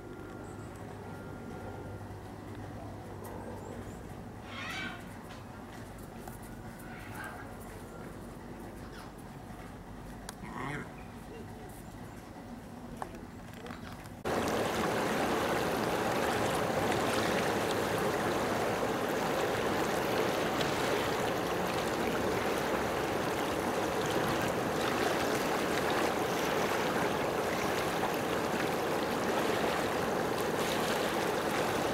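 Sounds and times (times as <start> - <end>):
rushing water: 14.2 - 31.9.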